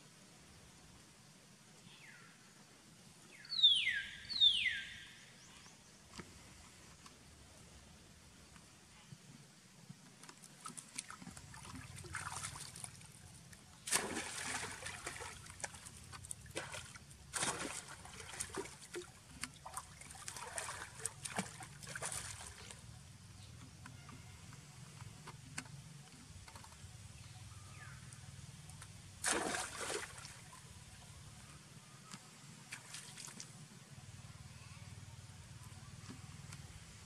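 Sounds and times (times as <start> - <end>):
water splashing: 10.6 - 22.8, 29.2 - 30.6.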